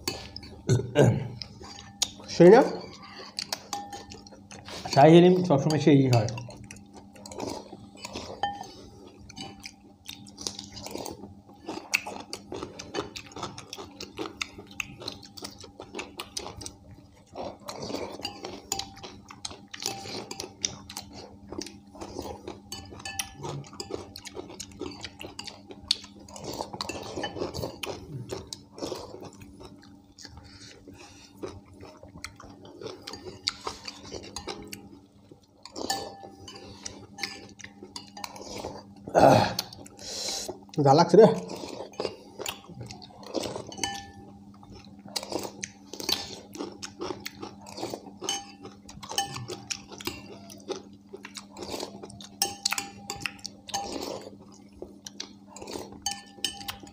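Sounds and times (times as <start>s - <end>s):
faint steady hum: 0.0s - 56.9s
people chewing: 0.0s - 56.9s
spoons clinking against ceramic bowls: 1.6s - 6.6s, 7.2s - 9.8s, 17.8s - 28.0s, 32.8s - 34.9s, 35.6s - 38.8s, 41.5s - 45.3s, 47.0s - 54.5s, 55.1s - 56.9s.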